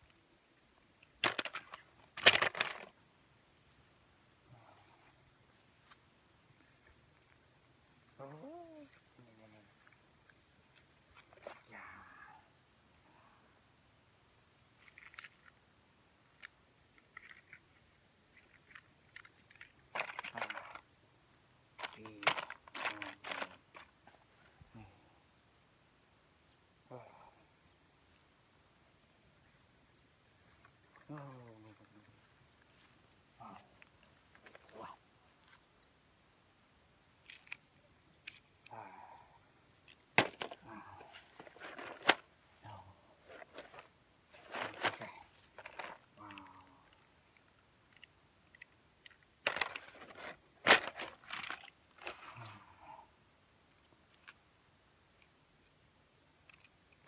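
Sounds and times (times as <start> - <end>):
grass rustling: 0.0 - 12.2, 14.2 - 15.7, 29.3 - 39.0, 39.7 - 47.6.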